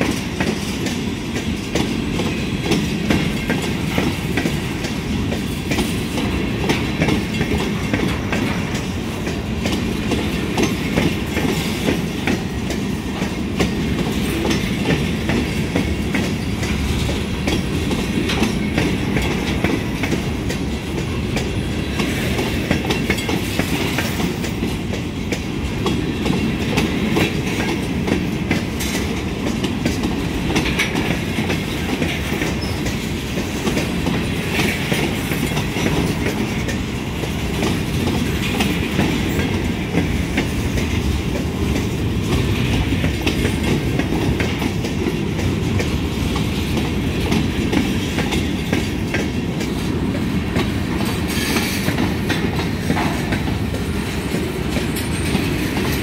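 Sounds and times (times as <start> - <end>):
train wheels clattering on rails: 0.0 - 56.0.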